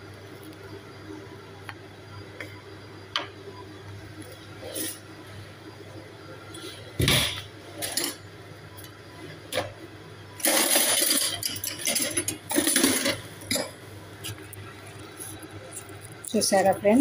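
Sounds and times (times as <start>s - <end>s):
dishes clinking and scraping: 7.0s - 8.2s, 10.4s - 14.4s.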